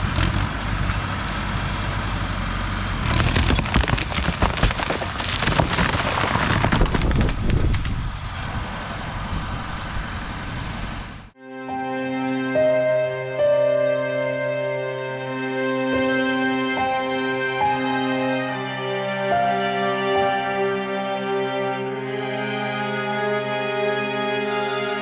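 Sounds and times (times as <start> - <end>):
crawler tractor engine running: 0.0 - 11.4
tree cracking and crashing down: 3.0 - 8.2.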